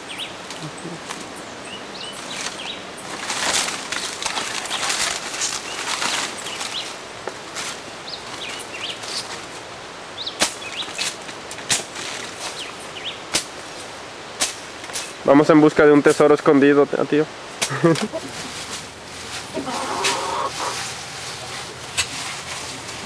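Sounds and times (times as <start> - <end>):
birds chirping: 0.0 - 7.1, 7.7 - 11.2, 12.3 - 13.3, 17.6 - 23.0
leaves and branches rustling: 0.0 - 23.0.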